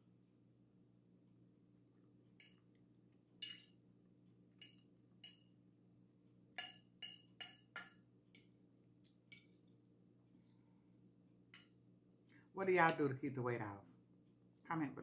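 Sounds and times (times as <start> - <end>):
fork clinking against plate: 3.4 - 3.8, 6.6 - 8.0.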